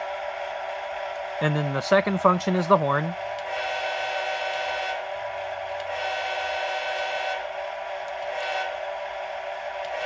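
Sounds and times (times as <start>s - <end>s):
model train air horn: 3.5s - 5.1s, 5.9s - 7.5s, 8.3s - 8.8s.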